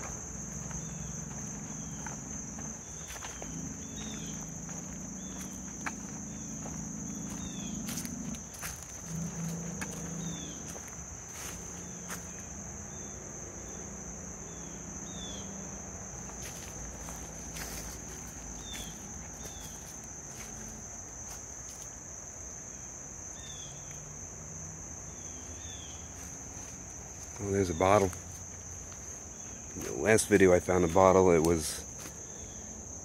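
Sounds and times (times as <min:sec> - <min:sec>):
footsteps on leaf litter: 0:00.0 - 0:12.4, 0:16.2 - 0:21.9, 0:26.0 - 0:32.2
high-pitched insect chorus: 0:00.0 - 0:33.0.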